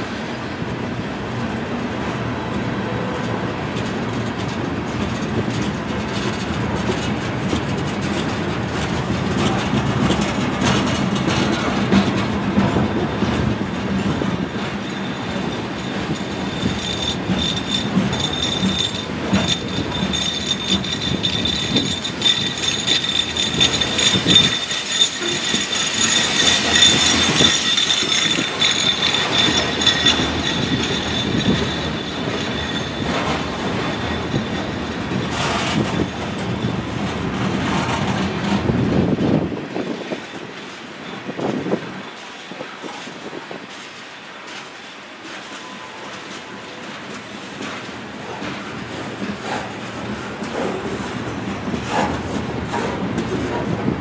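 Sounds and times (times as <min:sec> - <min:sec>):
freight train wheels on rails: 0:00.0 - 0:54.0
high wheel squeal: 0:14.3 - 0:37.0, 0:45.3 - 0:47.0.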